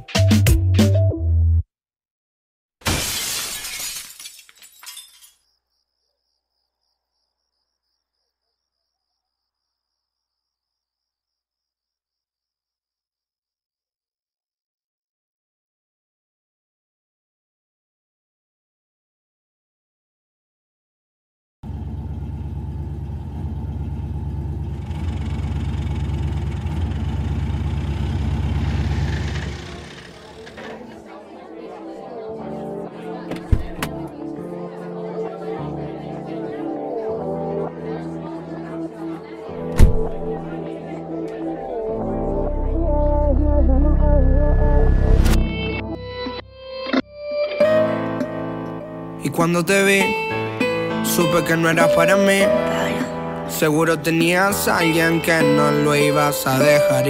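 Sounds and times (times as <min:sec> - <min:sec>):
glass shattering: 0:02.8 - 0:05.5
glass pieces clinking: 0:02.9 - 0:05.5
crickets chirping: 0:05.0 - 0:12.8
engine idling: 0:21.6 - 0:30.6.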